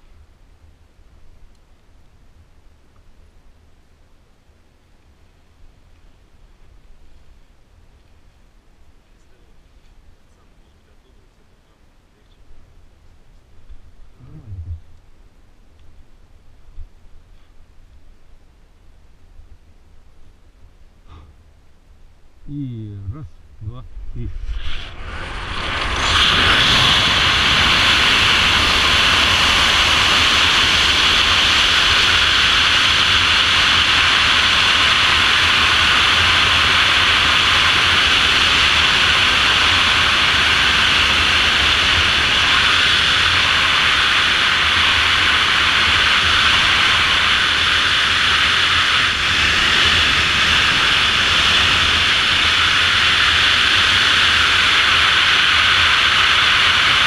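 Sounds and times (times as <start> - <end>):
deep rumble: 13.4 - 15.0, 22.3 - 57.0.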